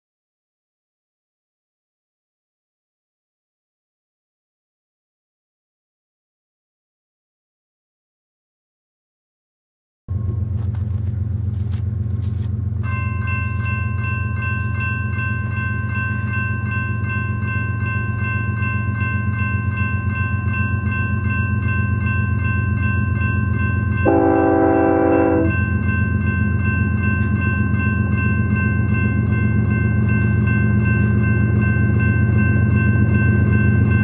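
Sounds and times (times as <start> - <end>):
crossing warning bell ringing: 10.1 - 34.0
train air horn blast: 24.1 - 25.6.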